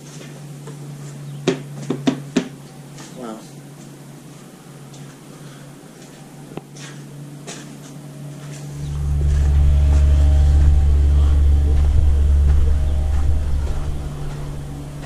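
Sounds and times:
faint steady hum: 0.0 - 15.0
wind buffeting microphone: 8.8 - 15.0.

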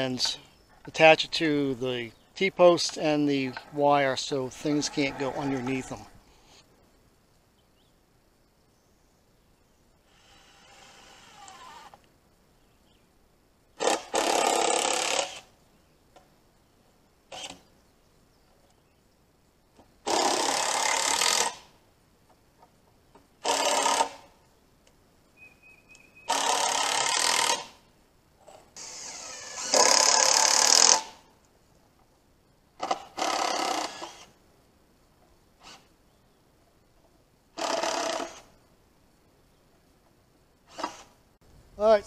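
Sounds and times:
power driver sinking screws into wood: 13.8 - 15.5, 23.4 - 24.3, 26.3 - 27.8, 28.8 - 31.2, 32.8 - 34.3, 37.6 - 38.5.

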